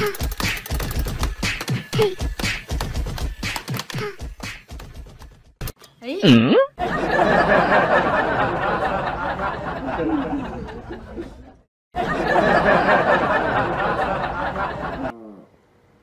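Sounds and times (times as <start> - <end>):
crowd laughing laugh track: 6.8 - 15.2.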